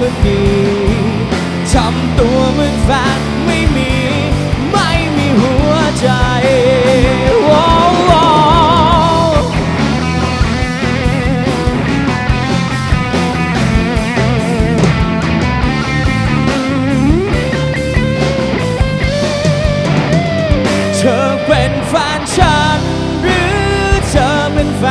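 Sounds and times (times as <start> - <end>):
bass guitar: 0.0 - 24.9
drums: 0.0 - 24.9
electric guitar solo: 4.4 - 24.9.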